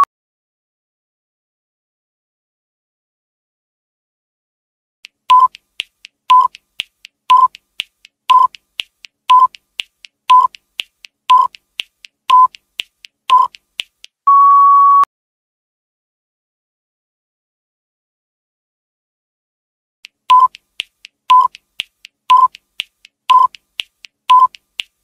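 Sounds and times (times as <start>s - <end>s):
fast timer ticking: 5.0s - 14.2s, 20.0s - 25.0s
short beeps: 5.3s - 5.5s, 9.3s - 9.5s, 14.3s - 15.1s, 20.3s - 20.6s, 21.3s - 21.5s, 22.3s - 22.5s, 23.3s - 23.5s, 24.3s - 24.5s
long steady beep: 14.3s - 15.1s, 22.3s - 22.5s, 23.3s - 23.5s, 24.3s - 24.5s.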